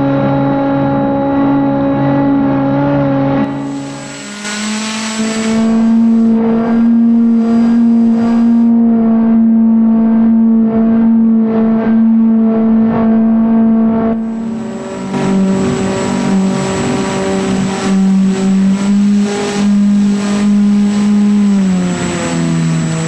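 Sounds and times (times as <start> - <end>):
electric motor and propeller whine: 3.3 - 10.6, 14.0 - 23.0
wind rushing over camera: 3.5 - 8.7.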